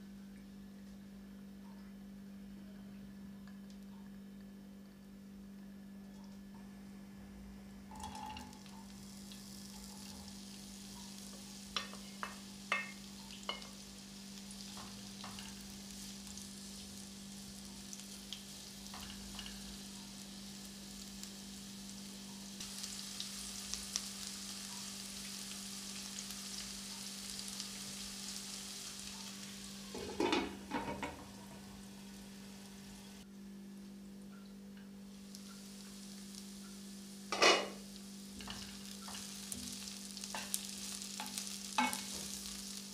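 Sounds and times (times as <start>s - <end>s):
onions sizzling in oil: 7.9s - 33.3s, 35.0s - 42.9s.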